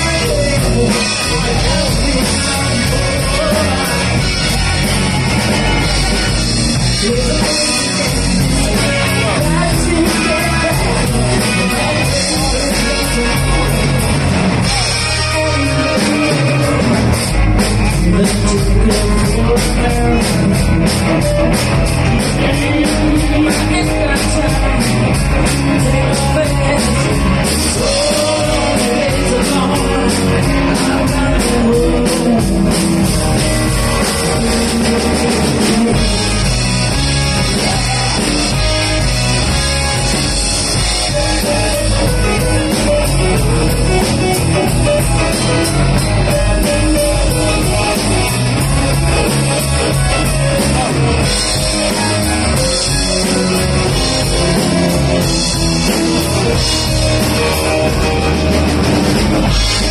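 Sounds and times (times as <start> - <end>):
bass guitar: 0.0 - 59.9
drum kit: 0.0 - 59.9
electric guitar: 0.0 - 59.9
woman singing: 25.8 - 32.9.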